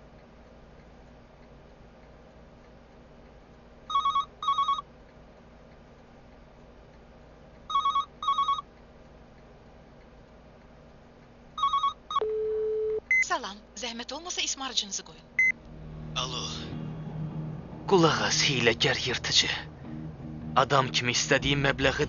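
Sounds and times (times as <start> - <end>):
telephone electronic trill ring: 3.9 - 4.8, 7.7 - 8.6, 11.6 - 12.2.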